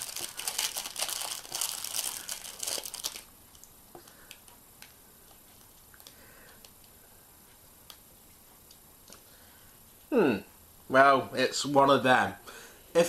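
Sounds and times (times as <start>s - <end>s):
plastic wrapper crinkling and tearing: 0.0s - 4.5s.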